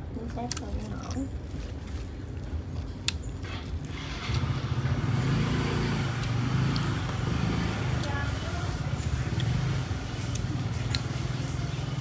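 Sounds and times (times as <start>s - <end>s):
vehicle engine running: 3.4s - 12.0s.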